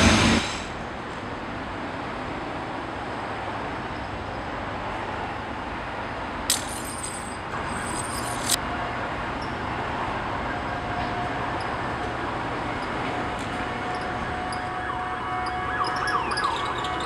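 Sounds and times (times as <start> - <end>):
city street traffic: 0.0 - 17.0
high metallic jingling: 6.5 - 8.6.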